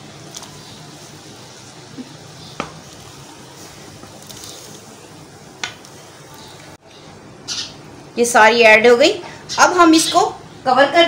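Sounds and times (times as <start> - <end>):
water boiling and bubbling: 0.0 - 6.8.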